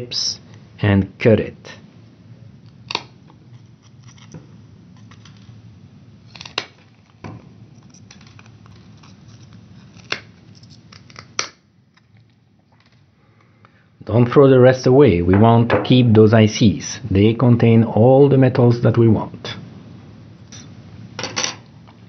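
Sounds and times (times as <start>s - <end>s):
faint scraping and handling: 6.2s - 11.3s.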